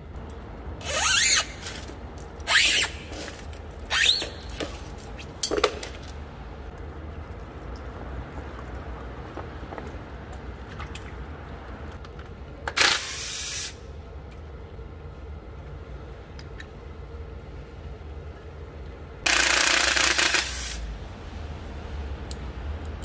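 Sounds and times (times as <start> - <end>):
pressurised spray hissing: 13.1 - 13.8.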